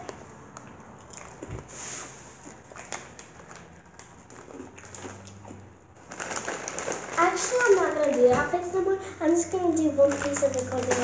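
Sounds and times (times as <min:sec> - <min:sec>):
plastic chip bag crinkling: 0:02.4 - 0:11.0.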